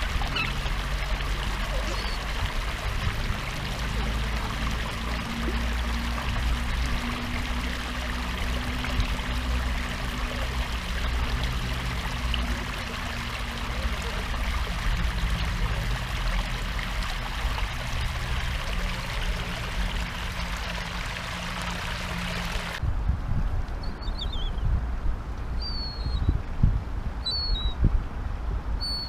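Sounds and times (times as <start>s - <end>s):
water gushing and splashing: 0.0s - 22.8s.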